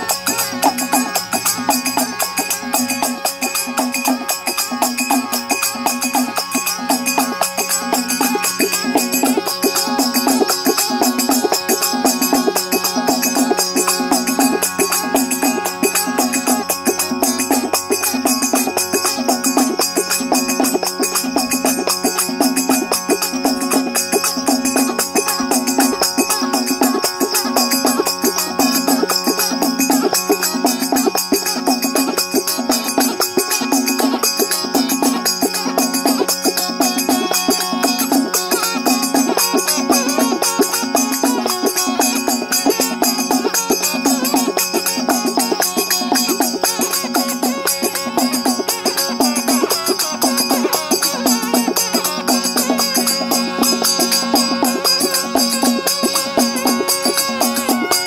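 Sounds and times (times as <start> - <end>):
gourd pipe melody with drone: 0.0 - 58.0
hand percussion: 0.0 - 58.0.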